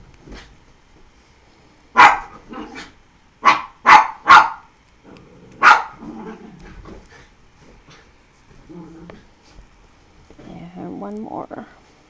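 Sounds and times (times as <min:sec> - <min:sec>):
dog barking: 0:02.0 - 0:04.7, 0:05.6 - 0:06.1.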